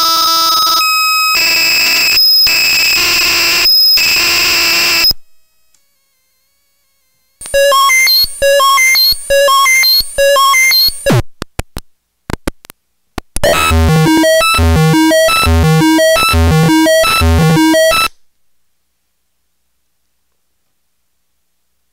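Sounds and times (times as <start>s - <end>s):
buzzy chiptune electronic notes: 0.0s - 11.2s, 13.4s - 18.1s
glitchy clicks: 1.2s - 5.9s, 7.4s - 18.2s
low bass notes: 13.4s - 17.8s.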